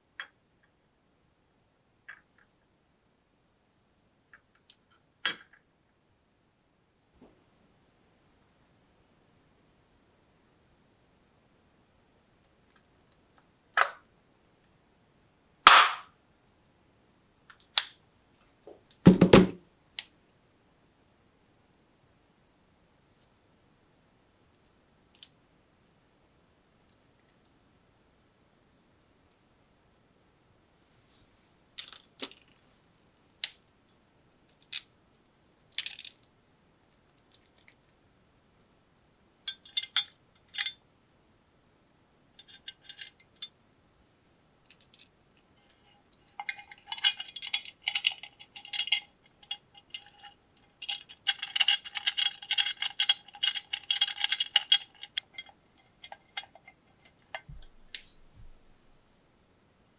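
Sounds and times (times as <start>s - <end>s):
metal parts clicking and clinking: 4.6s - 5.6s, 33.9s - 34.9s, 35.7s - 36.3s, 37.2s - 37.8s, 39.5s - 40.8s, 42.4s - 43.6s, 44.6s - 57.7s
rapid metallic clicking and scraping: 45.6s - 57.6s.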